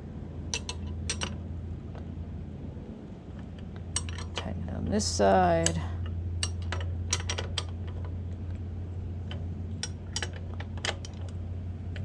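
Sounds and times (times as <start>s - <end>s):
steady low hum: 0.0s - 12.0s
wrench metallic clicks: 0.5s - 1.4s, 3.7s - 4.5s, 5.6s - 8.1s, 9.3s - 12.0s.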